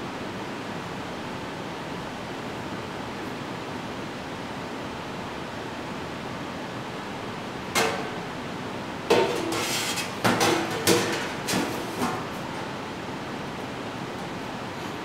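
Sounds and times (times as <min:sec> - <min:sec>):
metal pans clanking: 0:09.1 - 0:12.3.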